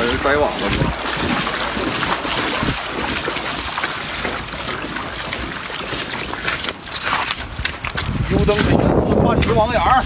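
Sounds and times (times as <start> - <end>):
river water rushing: 0.0 - 7.9.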